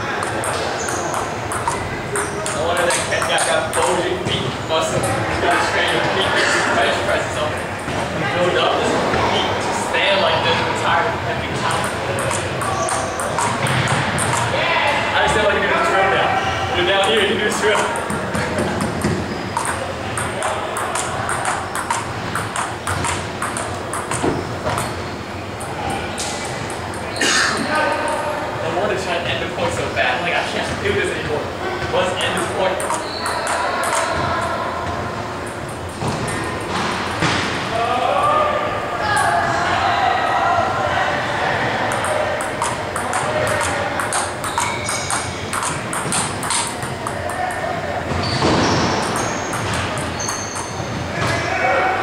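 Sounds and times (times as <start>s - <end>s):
ping-pong ball hitting paddles: 0.0s - 16.2s, 16.8s - 28.4s, 30.6s - 38.3s, 41.4s - 52.0s
ball bouncing on table: 0.2s - 5.2s, 11.5s - 14.5s, 17.0s - 25.0s, 32.3s - 35.0s, 35.6s - 37.5s, 41.9s - 51.4s.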